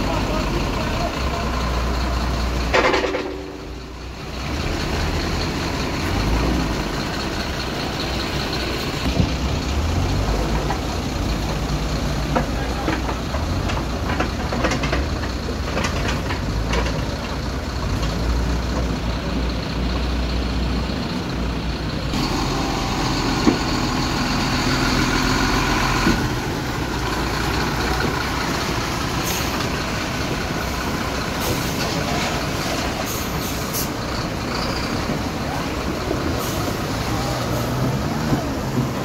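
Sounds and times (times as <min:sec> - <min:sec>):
diesel engine running: 0:00.0 - 0:39.0.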